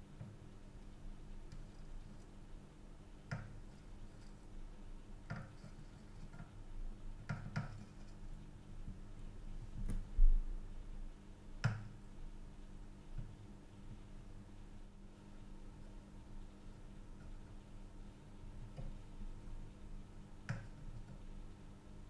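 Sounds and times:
faint steady low hum: 0.0 - 22.0
soldering iron clicks and taps: 20.4 - 21.2.

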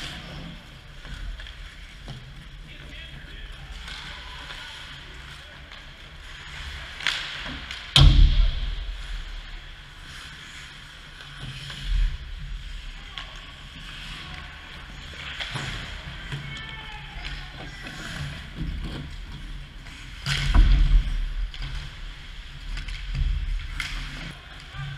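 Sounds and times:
skates scraping on ice: 0.0 - 24.9
loud knock with heavy thud: 8.0 - 9.0
dull thump: 8.0 - 9.3.

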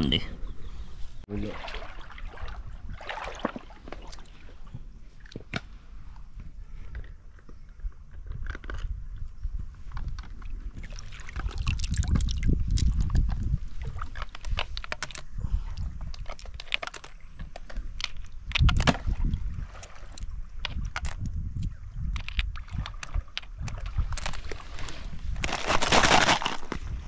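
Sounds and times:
hands splashing in water: 1.4 - 4.4
small sharp clicks of snails: 14.1 - 18.9, 20.1 - 24.5
plastic bottle knocks and rustles: 18.6 - 19.2.

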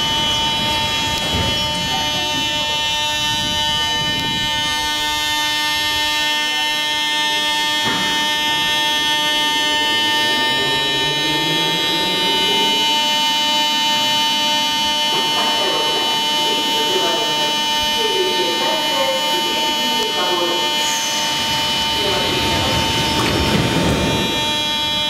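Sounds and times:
low rising whine: 0.0 - 25.0
train electrical hum and whine: 0.0 - 25.0.

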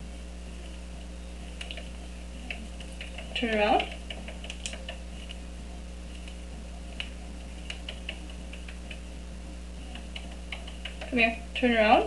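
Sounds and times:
steady low hum: 0.0 - 12.0
bird claws tapping on wood: 2.5 - 5.0, 9.9 - 11.2.

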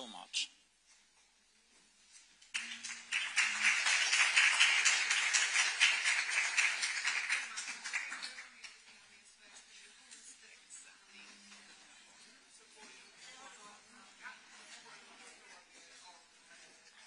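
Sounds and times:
audience applauding: 2.5 - 8.8.

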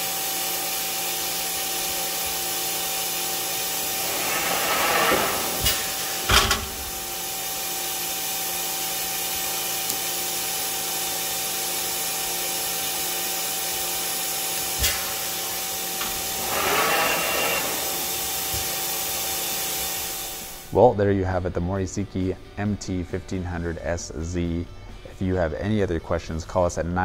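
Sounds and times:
machine motors humming and whining: 2.3 - 7.6, 14.8 - 20.7
short rushing swell with high tone: 3.5 - 7.4
sharp machine clunks: 3.9 - 7.2.

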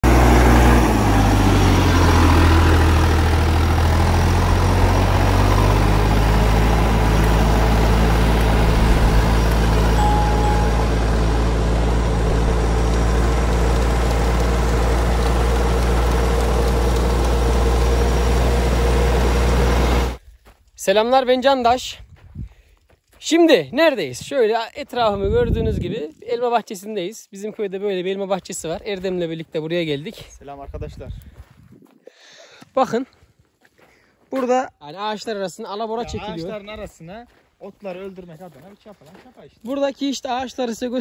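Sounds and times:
tractor diesel engine running: 0.0 - 20.2.

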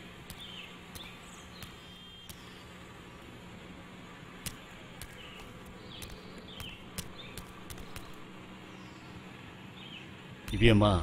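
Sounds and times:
low steady hum: 0.0 - 11.0
small bird chirping: 0.2 - 2.8, 4.4 - 10.2
sharp clicks: 0.2 - 3.3, 4.4 - 8.4.

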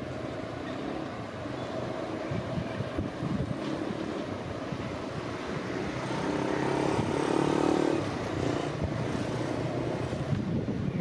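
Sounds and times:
wind rumbling on microphone: 1.0 - 11.0
vehicle engine passing: 5.2 - 10.3.

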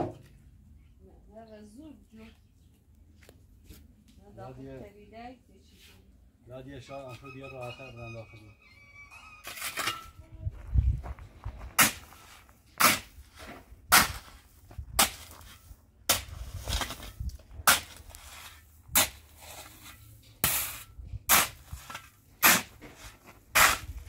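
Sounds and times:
spade scraping sand and gravel: 9.4 - 10.2, 11.7 - 24.0.

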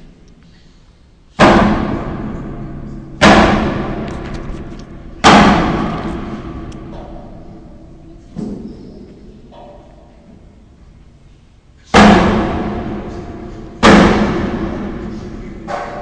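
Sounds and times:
loud machinery bangs: 1.4 - 8.7, 11.9 - 16.0.

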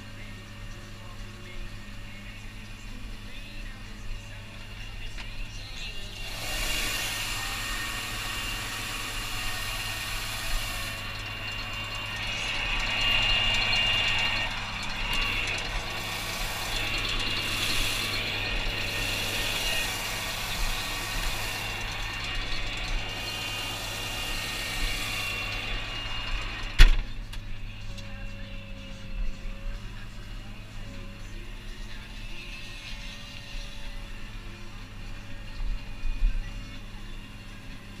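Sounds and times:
tractor engine hum: 0.0 - 38.0
machinery rattling and clicking: 4.0 - 28.2.

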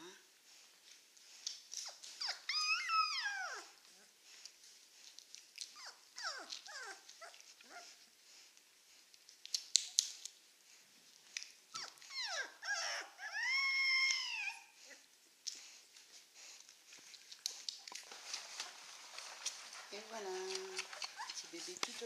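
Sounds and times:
puppy crying and squeaking: 1.8 - 3.8, 5.8 - 7.9, 11.7 - 15.0, 20.6 - 21.6.

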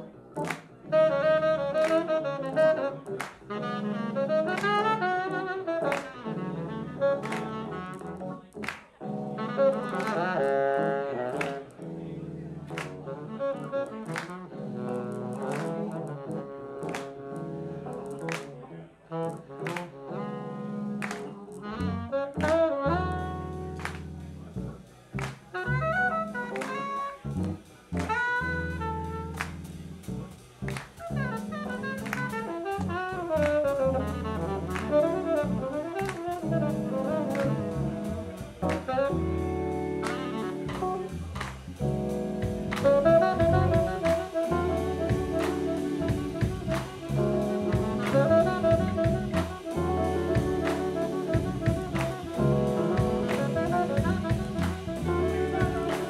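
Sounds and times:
bass: 0.0 - 18.6, 19.3 - 56.0
keyboard: 0.0 - 56.0
saxophone: 0.0 - 56.0
drum kit: 5.8 - 10.8, 22.4 - 56.0.

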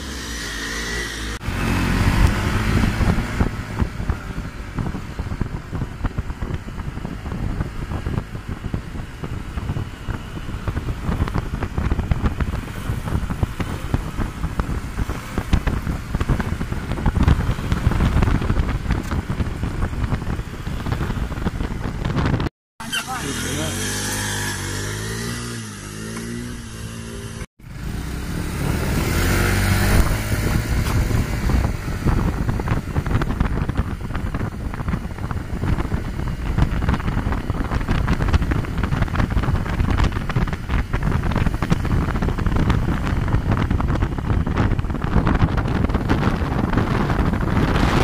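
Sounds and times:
motor scooter engine revving: 0.0 - 5.1, 22.8 - 48.0
wind buffeting on microphone: 1.4 - 22.5, 24.0 - 48.0.

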